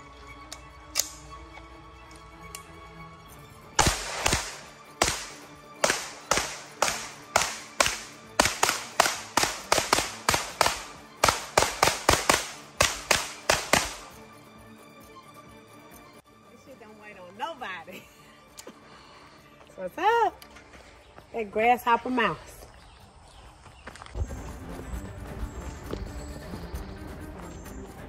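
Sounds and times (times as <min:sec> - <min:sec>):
faint background music: 0:00.0 - 0:28.0
carbine gunshots with echo: 0:03.8 - 0:14.2.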